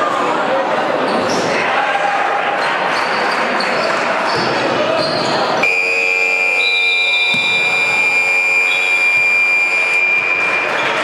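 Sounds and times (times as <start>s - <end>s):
arena buzzer long blast: 5.6s - 10.6s.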